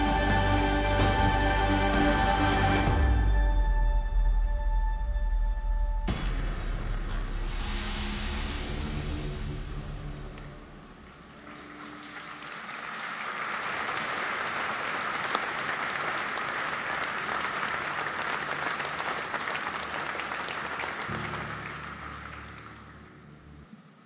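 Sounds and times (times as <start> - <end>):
audience applauding: 11.0 - 23.4.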